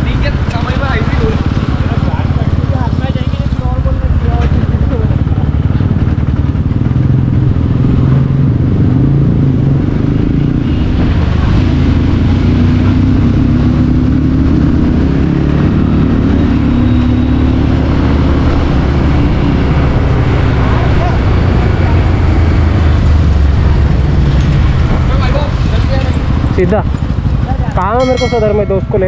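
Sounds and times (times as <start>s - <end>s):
motorcycle engine accelerating: 0.0s - 29.0s
wind and road rush: 0.0s - 29.0s.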